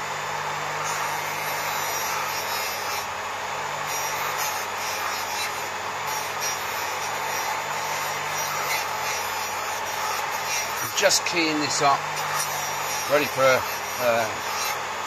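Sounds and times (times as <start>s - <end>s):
bench grinder motor humming: 0.0s - 15.0s.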